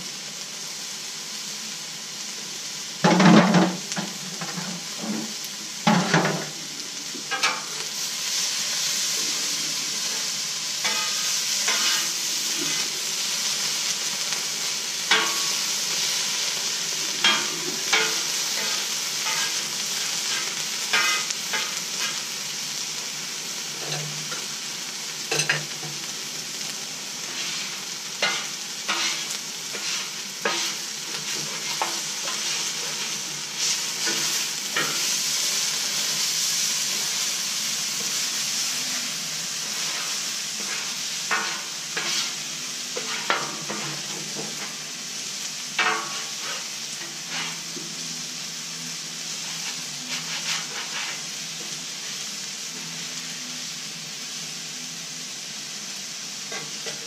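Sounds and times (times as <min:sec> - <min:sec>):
chicken sizzling on griddle: 0:00.0 - 0:57.0
metal spatula scraping steel: 0:10.1 - 0:12.9, 0:15.1 - 0:15.7, 0:17.2 - 0:19.6, 0:20.2 - 0:22.2, 0:27.2 - 0:35.1, 0:39.6 - 0:44.7, 0:45.8 - 0:47.8, 0:49.4 - 0:51.4.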